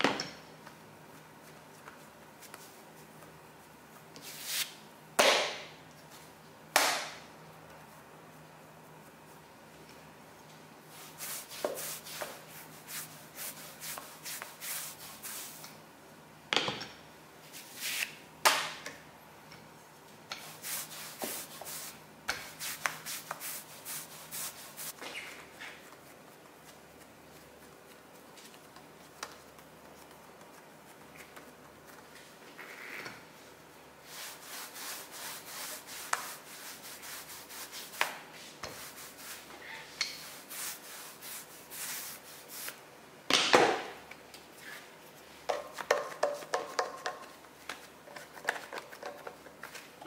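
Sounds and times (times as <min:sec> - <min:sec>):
rolling pin rubbing over dough: 0:34.0 - 0:39.5, 0:40.2 - 0:42.8.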